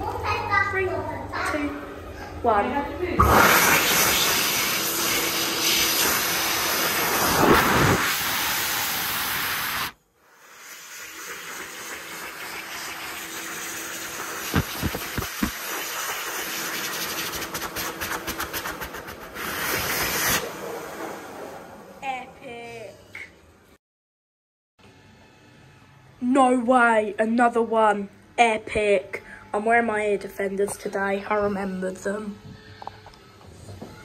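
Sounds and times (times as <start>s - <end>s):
hand dryer blowing: 3.2s - 21.9s.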